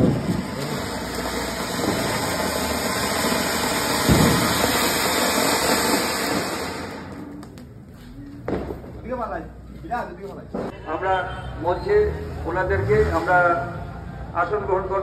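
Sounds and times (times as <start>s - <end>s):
firework fountain hissing: 0.0s - 7.9s.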